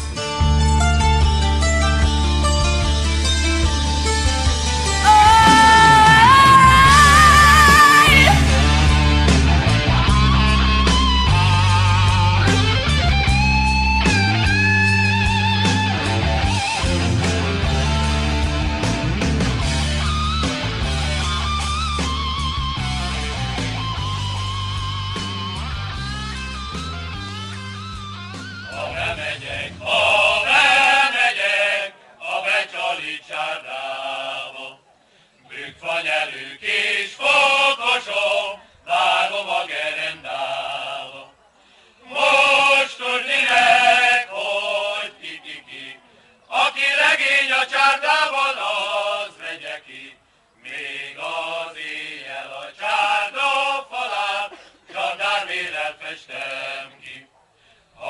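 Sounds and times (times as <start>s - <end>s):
rock guitar music: 0.0s - 29.1s
man singing unaccompanied: 11.4s - 12.6s.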